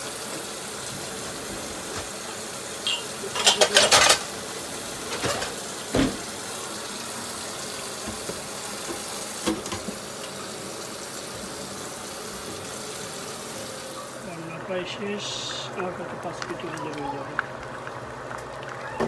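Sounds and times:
dishes clinking: 0:02.8 - 0:04.3
dishwasher door shutting: 0:05.0 - 0:06.5, 0:08.0 - 0:10.1
tap running into steel sink: 0:08.0 - 0:10.1.

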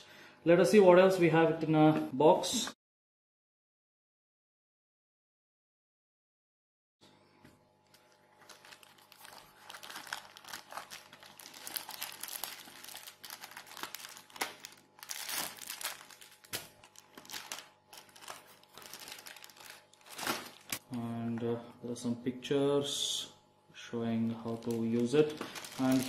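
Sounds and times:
plastic bags crinkling: 0:08.0 - 0:20.9, 0:24.4 - 0:26.0
cardboard rustling: 0:08.4 - 0:20.8.

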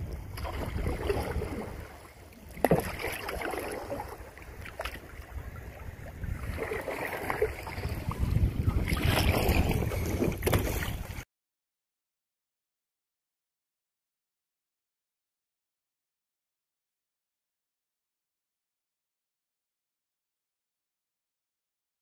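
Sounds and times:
wind buffeting microphone: 0:00.0 - 0:02.0, 0:05.0 - 0:11.2
waves slapping a canoe hull: 0:00.0 - 0:11.2.

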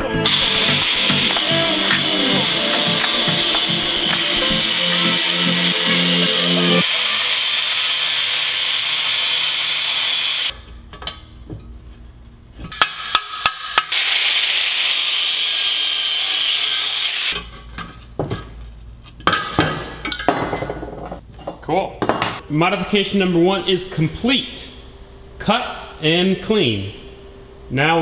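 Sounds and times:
angle grinder cutting steel: 0:00.2 - 0:10.5, 0:13.6 - 0:17.4.

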